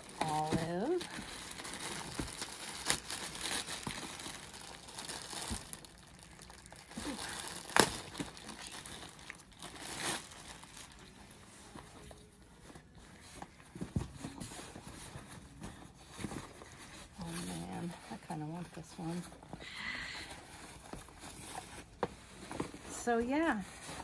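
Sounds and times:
sharp plastic crackle: 0.0s - 11.4s
plastic packaging crinkling: 0.0s - 24.0s.

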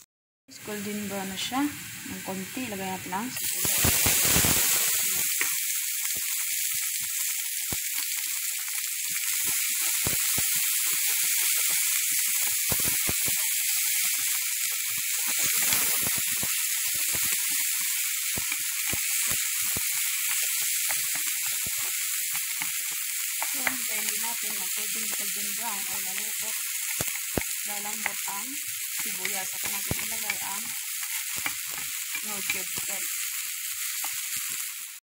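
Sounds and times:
onion sizzling in hot oil: 0.5s - 35.0s
oil popping and crackling: 3.4s - 35.0s.

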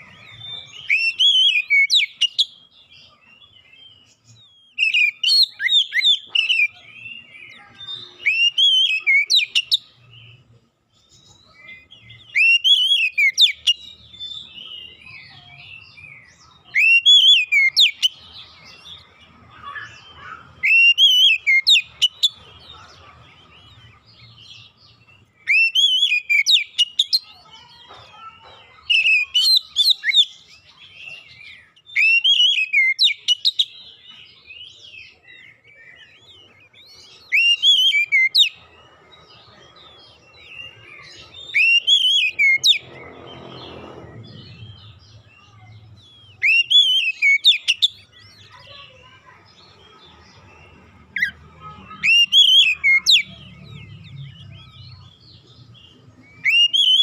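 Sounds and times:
bird singing whistled phrases: 0.0s - 2.6s, 4.7s - 9.9s, 11.7s - 15.0s, 16.1s - 18.2s, 19.6s - 22.3s, 25.4s - 27.3s, 31.7s - 33.7s, 37.3s - 38.6s, 40.6s - 42.8s, 45.4s - 48.5s, 52.0s - 54.9s, 56.3s - 57.0s.

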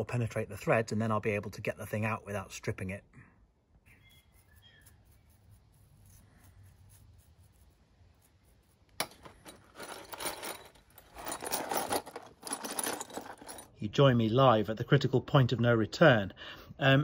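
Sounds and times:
metal parts rattling in a tub: 9.0s - 13.8s.

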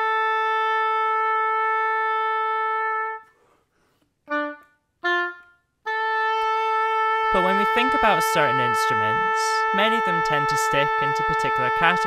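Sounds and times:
oboe playing: 0.0s - 3.4s, 4.3s - 12.0s.

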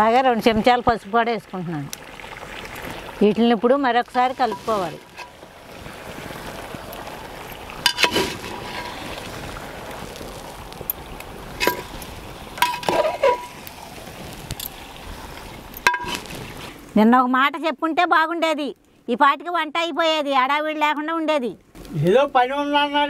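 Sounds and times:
steady background hiss: 2.9s - 23.0s
ladle scraping metal pot: 4.2s - 5.8s, 7.4s - 9.6s, 11.5s - 13.7s, 15.8s - 16.7s.

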